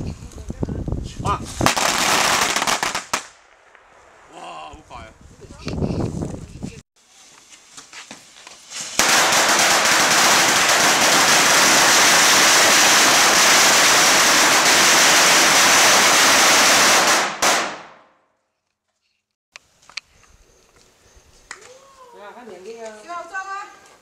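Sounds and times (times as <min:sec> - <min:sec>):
firecrackers crackling: 0:01.6 - 0:04.4, 0:08.2 - 0:18.0.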